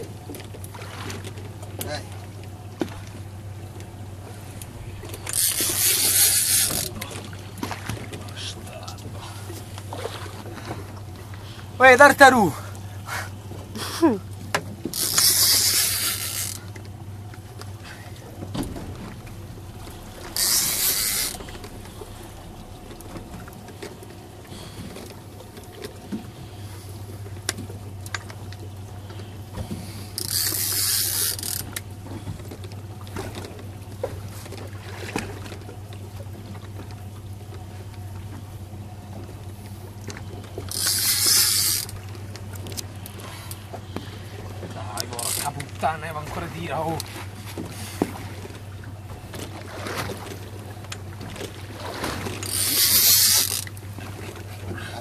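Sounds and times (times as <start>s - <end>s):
fishing reel whirring: 4.8s - 7.2s, 14.8s - 17.6s, 19.0s - 25.1s, 30.0s - 31.9s, 40.5s - 43.8s, 45.0s - 45.6s, 52.2s - 54.4s.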